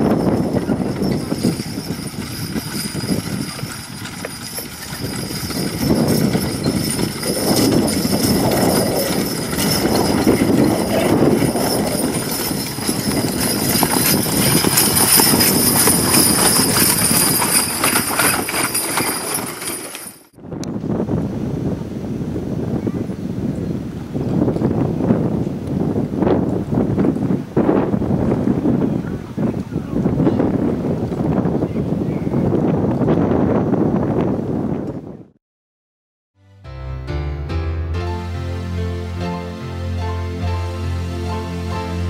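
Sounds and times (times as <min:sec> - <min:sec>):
horses' hooves trotting: 0:00.0 - 0:20.4.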